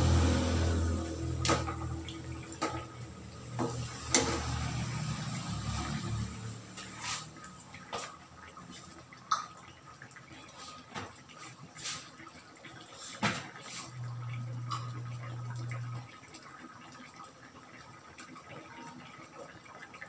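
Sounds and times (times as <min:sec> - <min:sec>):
low steady hum: 0:00.0 - 0:03.7, 0:13.9 - 0:16.6.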